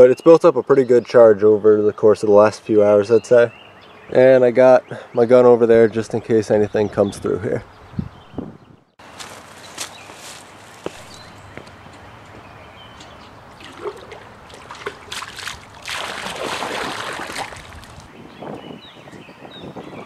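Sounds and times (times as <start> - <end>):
birds chirping: 0.0 - 20.0
water sloshing and gurgling: 13.0 - 18.1.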